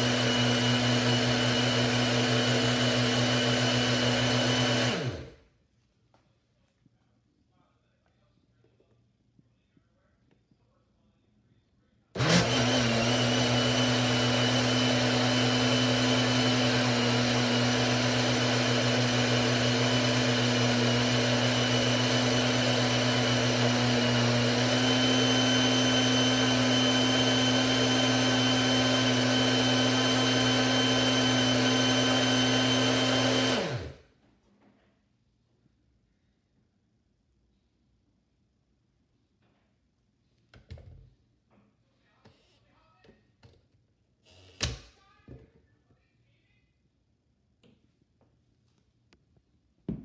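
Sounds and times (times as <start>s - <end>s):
blender motor running: 0.0s - 5.4s, 12.2s - 34.0s.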